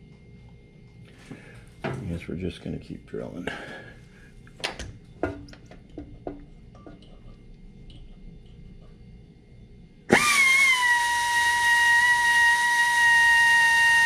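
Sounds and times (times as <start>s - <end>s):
electric drill whining: 10.1s - 14.0s.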